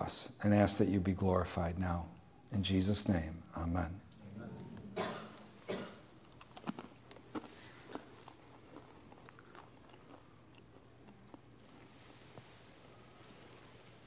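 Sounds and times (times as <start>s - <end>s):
faint crunching and chewing: 5.2s - 14.0s.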